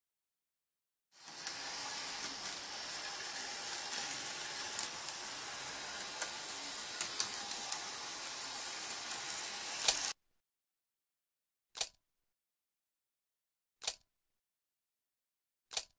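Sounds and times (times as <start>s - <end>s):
model tram motor whirring: 1.2s - 10.1s
sharp clicks: 13.8s - 14.1s.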